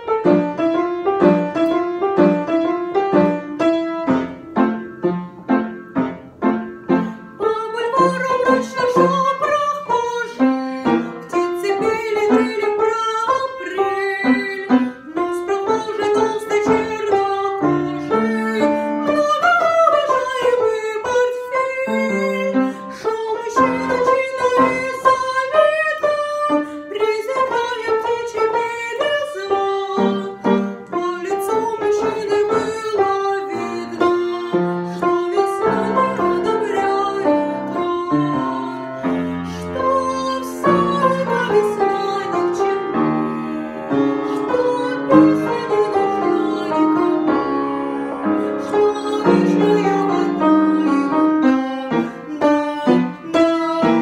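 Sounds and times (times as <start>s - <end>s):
instrumental accompaniment: 0.0s - 54.0s
woman singing: 6.9s - 54.0s.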